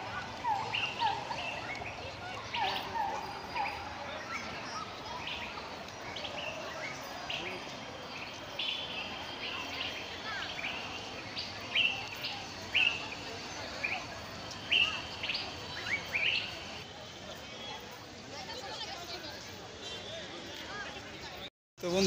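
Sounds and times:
birds chirping: 0.0 - 16.8
outdoor background noise: 0.0 - 22.0.

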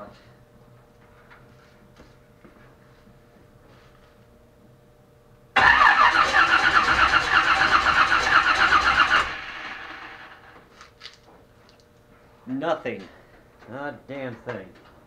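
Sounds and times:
car engine cranking on starter: 5.6 - 10.5.

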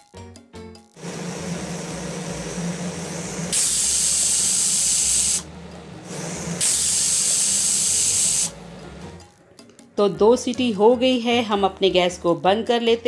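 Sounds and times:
pressure cooker whistling: 1.0 - 8.8.

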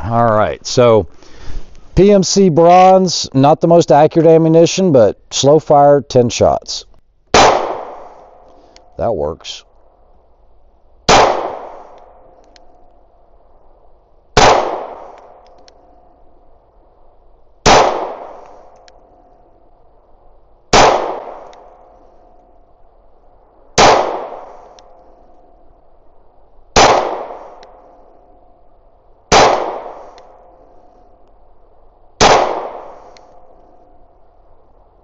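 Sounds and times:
pistol shots with echo: 7.3 - 8.4, 11.1 - 12.4, 14.4 - 15.4, 17.6 - 18.8, 20.7 - 21.9, 23.8 - 25.4, 26.8 - 28.2, 29.3 - 30.8, 32.2 - 33.6.

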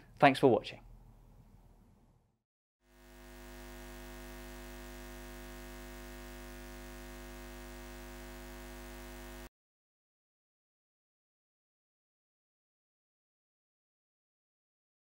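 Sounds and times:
steady electronic hum: 2.9 - 9.5.

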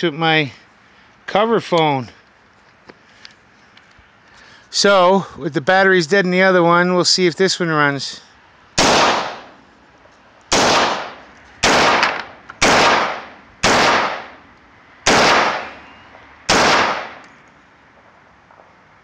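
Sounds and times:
rifle shots: 8.8 - 9.6, 10.5 - 14.4, 15.0 - 15.9, 16.5 - 17.3.

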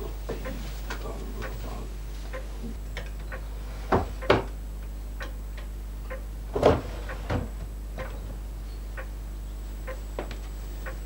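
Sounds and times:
low steady hum: 0.0 - 11.0
clock ticking: 10.8 - 11.0.

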